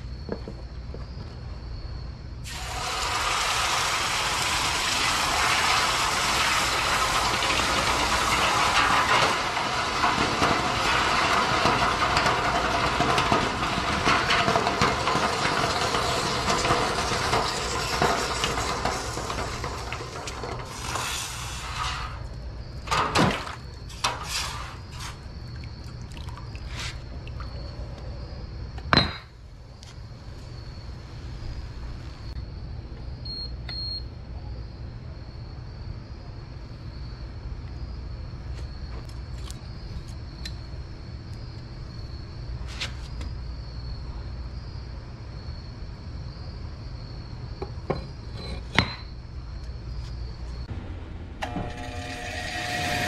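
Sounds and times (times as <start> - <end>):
hot metal hissing in water: 2.4 - 22.3, 23.9 - 25.2, 51.8 - 53.0.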